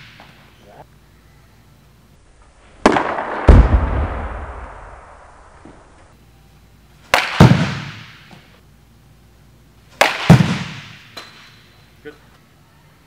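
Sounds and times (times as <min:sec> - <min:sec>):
bat cracking against baseball: 0:02.7 - 0:03.6, 0:07.0 - 0:08.6, 0:09.9 - 0:11.7.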